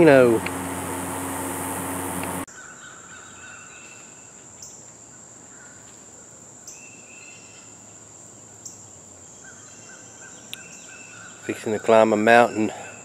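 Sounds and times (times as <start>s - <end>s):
insects buzzing: 0.0s - 2.5s.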